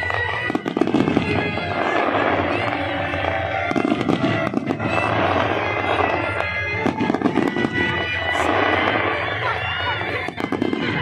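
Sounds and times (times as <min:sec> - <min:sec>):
fireworks bangs and crackles: 0:00.0 - 0:11.0
loud music with sustained tones: 0:00.0 - 0:11.0.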